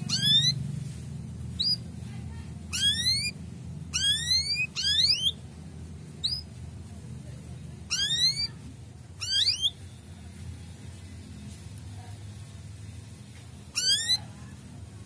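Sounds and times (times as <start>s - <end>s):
canary rising chirps: 0.0s - 6.7s, 7.6s - 10.2s, 13.6s - 15.0s.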